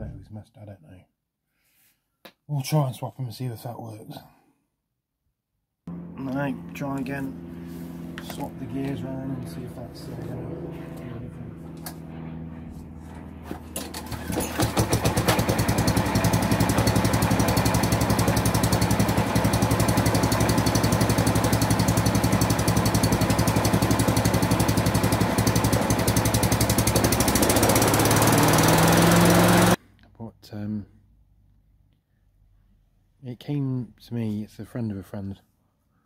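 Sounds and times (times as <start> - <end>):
lawnmower engine running: 5.9 - 29.8.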